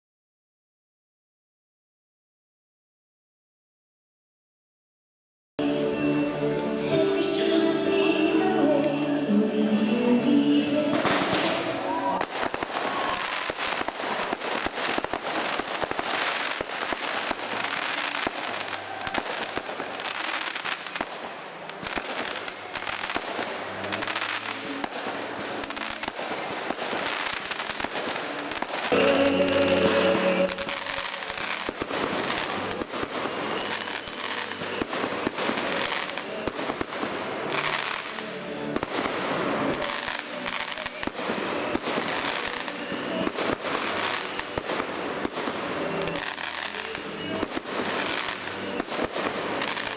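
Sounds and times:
music playing: 0:05.6 - 0:49.9
fireworks bangs and crackling: 0:10.8 - 0:49.9.

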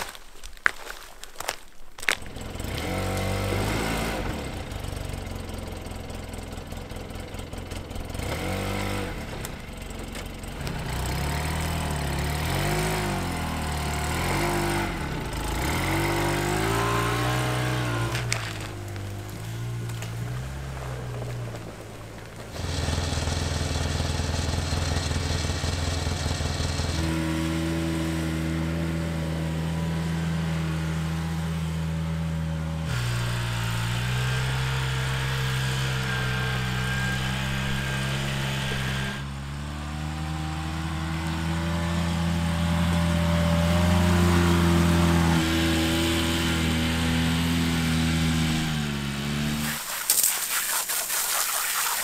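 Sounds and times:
utility vehicle engine running: 0:02.1 - 0:52.0
water jet hissing against log: 0:49.5 - 0:52.0.

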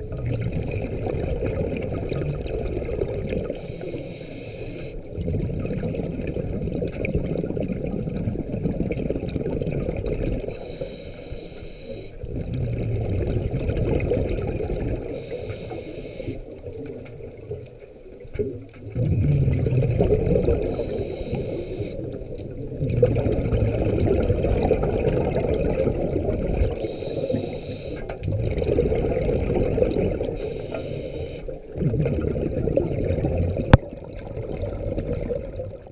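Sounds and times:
exhaust bubbles rushing: 0:00.0 - 0:03.5, 0:05.1 - 0:10.5, 0:12.2 - 0:15.1, 0:18.9 - 0:20.7, 0:22.6 - 0:26.8, 0:28.2 - 0:30.4, 0:31.7 - 0:35.9
regulator inhale hiss: 0:03.5 - 0:05.0, 0:10.6 - 0:12.2, 0:15.1 - 0:16.5, 0:20.7 - 0:22.0, 0:26.8 - 0:28.1, 0:30.4 - 0:31.6.

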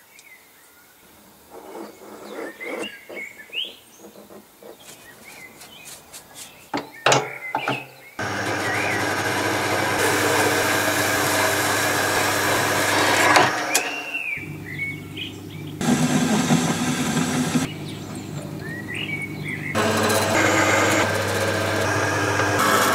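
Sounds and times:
birds chirping: 0:00.0 - 0:22.8
bandsaw motor hum: 0:08.2 - 0:22.9.

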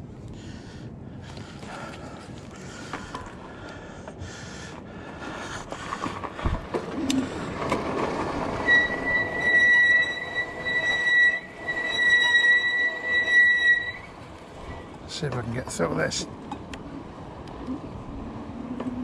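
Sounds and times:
fat tyres rolling on gravel: 0:01.2 - 0:19.0
bike brakes squealing: 0:08.2 - 0:14.8.

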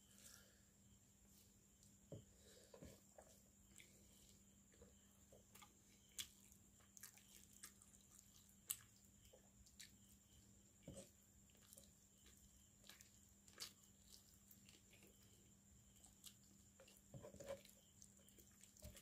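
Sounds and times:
fingers squelching rice and curry: 0:03.6 - 0:19.0
open-mouthed chewing: 0:05.4 - 0:10.2, 0:11.0 - 0:19.0.

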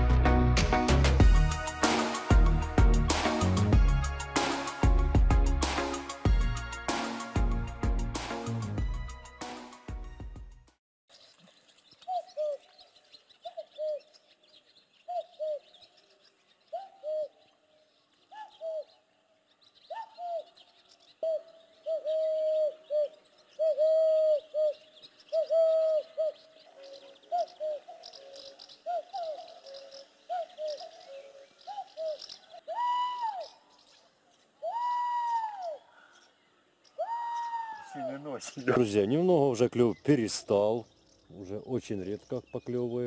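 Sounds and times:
small birds chirping: 0:11.1 - 0:43.0
man whistling dove-like coos: 0:21.2 - 0:23.0, 0:23.6 - 0:24.8, 0:25.4 - 0:26.2, 0:31.9 - 0:33.6, 0:34.6 - 0:35.9, 0:37.0 - 0:38.2.

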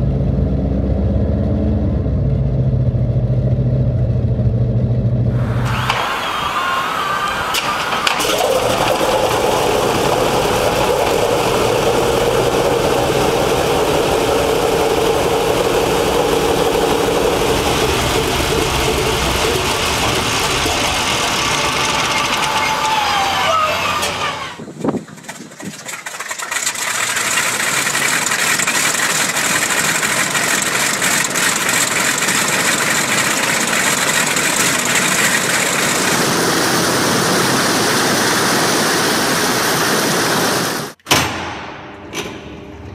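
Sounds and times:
propeller winding down: 0:00.0 - 0:41.0
radial aircraft engine running: 0:02.1 - 0:41.0
second radial engine running steadily: 0:07.5 - 0:41.0.

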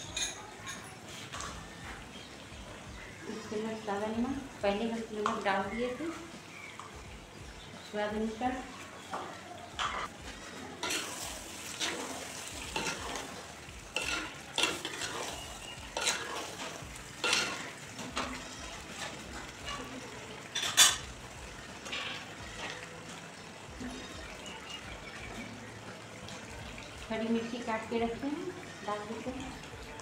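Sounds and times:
curry sizzling faintly: 0:00.0 - 0:30.0.

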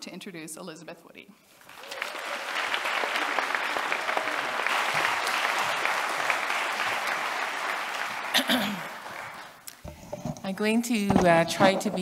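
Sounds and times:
audience applauding: 0:01.6 - 0:09.6.

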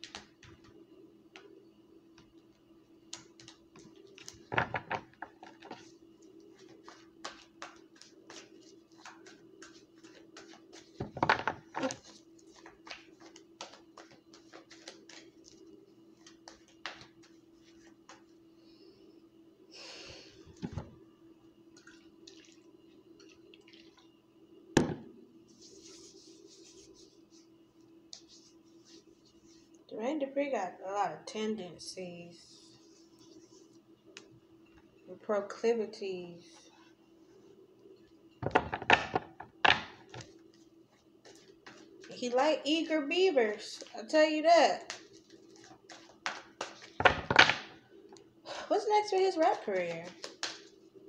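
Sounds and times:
cards being shuffled: 0:06.6 - 0:18.2, 0:44.9 - 0:47.0, 0:49.8 - 0:50.7.

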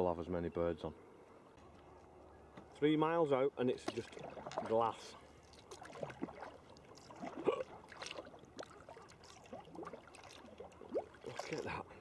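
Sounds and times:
kayak paddle splashing: 0:03.6 - 0:12.0.

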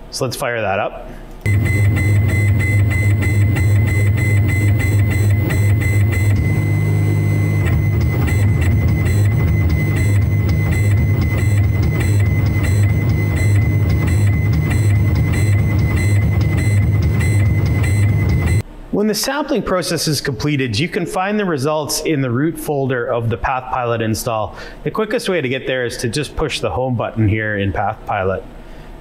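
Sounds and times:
milling machine humming and whining: 0:01.5 - 0:18.6.

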